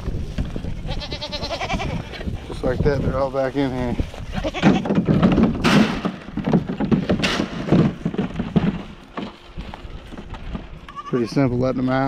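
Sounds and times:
goats knocking against trough: 4.5 - 9.4.

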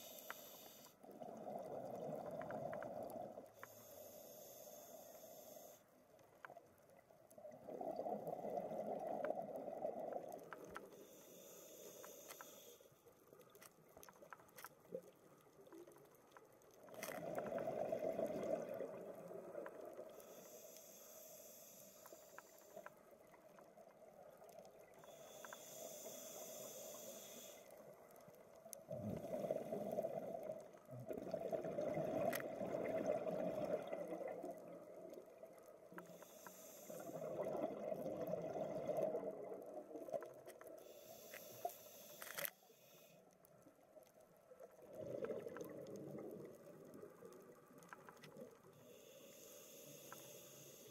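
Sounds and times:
regulator inhaling hiss: 0.0 - 1.0, 3.6 - 5.8, 11.0 - 12.9, 20.1 - 22.9, 25.0 - 27.8, 36.0 - 37.3, 40.8 - 43.2, 48.8 - 50.9
exhaled bubbles rumbling: 17.2 - 20.0, 28.9 - 35.1, 37.2 - 40.4, 44.7 - 47.7.

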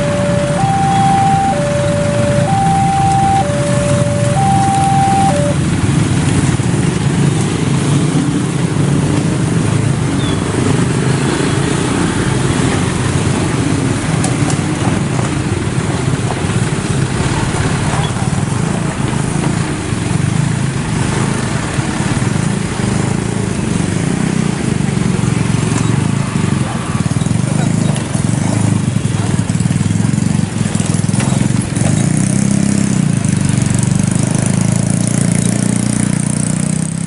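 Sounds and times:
car engine: 0.0 - 10.0
motorcycle engines passing: 0.0 - 37.0.

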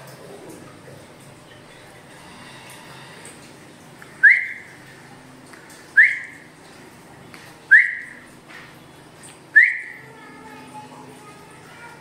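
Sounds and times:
parakeet whistled calls: 4.2 - 4.7, 6.0 - 6.3, 7.7 - 8.2, 9.6 - 10.0.

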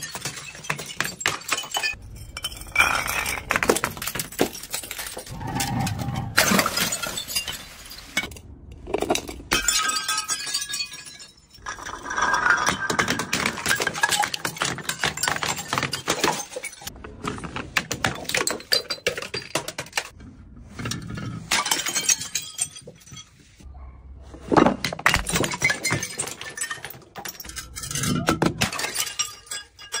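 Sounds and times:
glass smashing on stairs: 0.0 - 5.3, 6.4 - 8.4, 9.2 - 16.9, 21.5 - 23.4, 25.0 - 30.0
glass shards clinking: 0.0 - 8.4, 9.2 - 16.9, 25.3 - 30.0.

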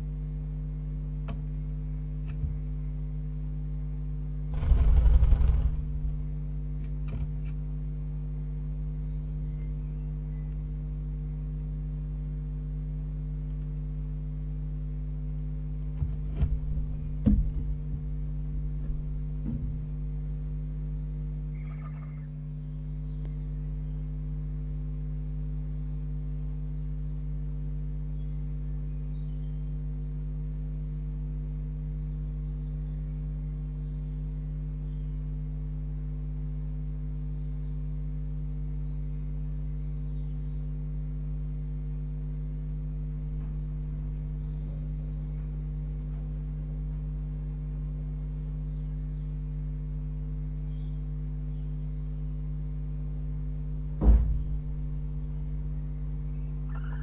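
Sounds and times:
electrical mains hum: 0.0 - 57.0
faint high chirps: 21.5 - 24.0, 56.3 - 57.0.

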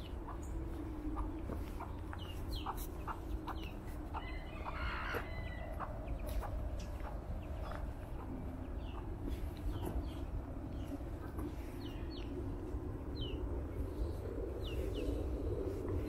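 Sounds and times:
chickens clucking: 0.0 - 12.4
small birds chirping: 0.0 - 16.0.

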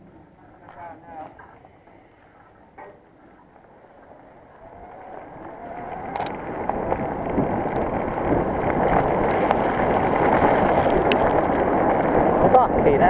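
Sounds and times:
bike tyres rolling on wet dirt: 3.4 - 13.0
wind on microphone: 3.4 - 13.0.

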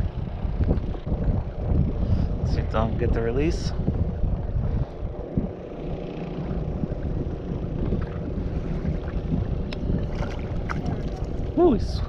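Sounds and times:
wind rushing over microphone: 0.0 - 12.0
water lapping at hull: 4.1 - 12.0.

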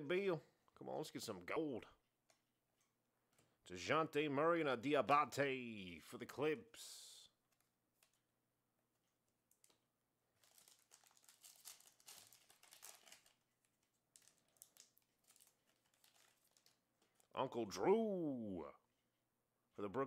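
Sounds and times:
foil wrapper crinkling and tearing: 9.3 - 17.3.

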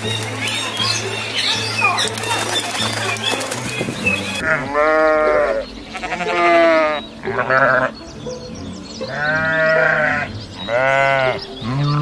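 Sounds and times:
background music: 0.0 - 12.0
sheep bleating: 4.4 - 8.0, 9.1 - 12.0.

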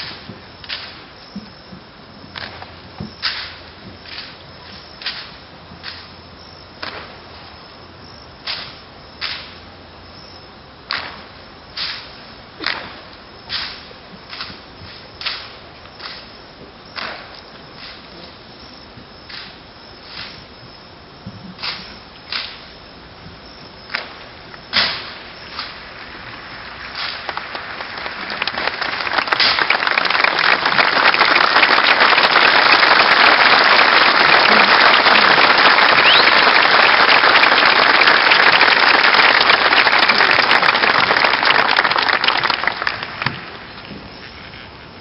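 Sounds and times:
audience applause: 25.4 - 43.9.

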